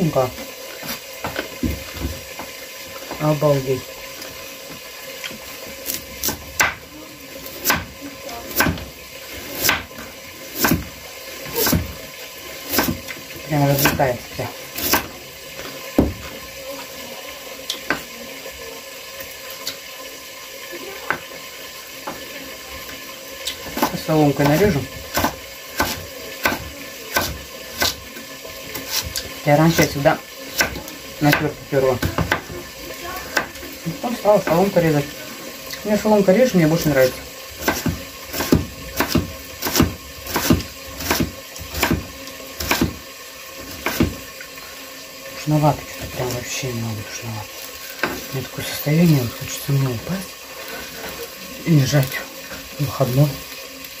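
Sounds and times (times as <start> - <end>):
knife chopping on wooden board: 5.9 - 6.8, 7.6 - 7.9, 8.5 - 8.9, 9.5 - 10.9, 12.7 - 13.1, 14.8 - 15.1, 23.7 - 28.0, 32.0 - 32.6, 37.6 - 43.0, 43.7 - 44.2.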